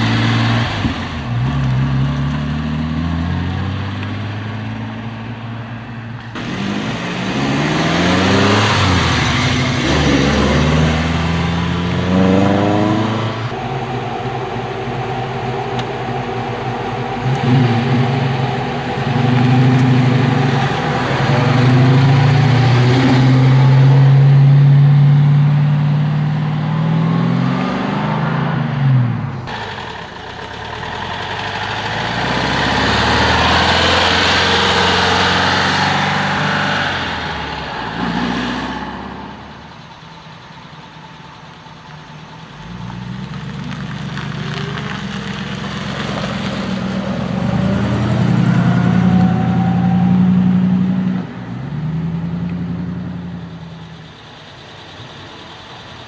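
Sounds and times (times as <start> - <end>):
car engine deep rumble: 0.0 - 56.0
old car engine approaching: 0.0 - 56.0.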